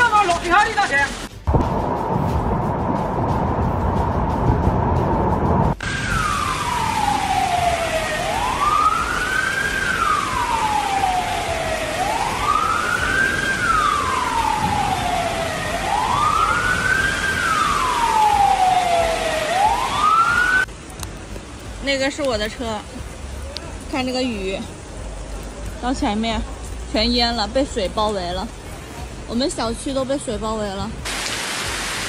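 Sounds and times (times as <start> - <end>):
cascading water rushing: 0.0 - 1.5, 5.8 - 32.0
siren wailing: 5.8 - 20.7
steady hiss: 31.0 - 32.0.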